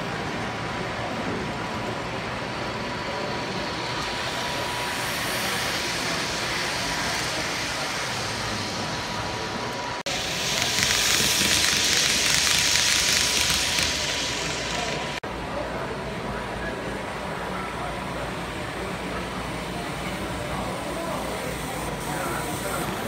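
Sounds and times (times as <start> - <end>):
model train wheels rolling on rails: 1.0 - 15.2.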